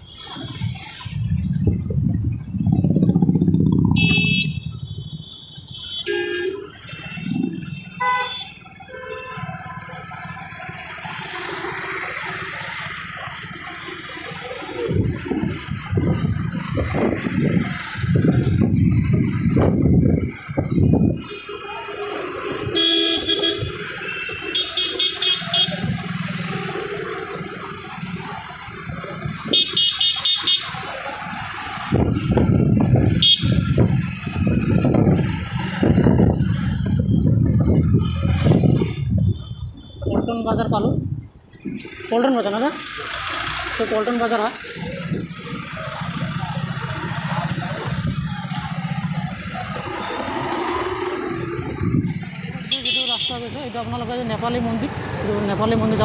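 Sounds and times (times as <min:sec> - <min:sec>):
motorbike engine and road rumble: 0:00.0 - 0:56.0
vehicle horns honking: 0:04.0 - 0:09.7, 0:20.8 - 0:26.1, 0:29.4 - 0:30.9, 0:33.1 - 0:33.8, 0:52.6 - 0:53.6.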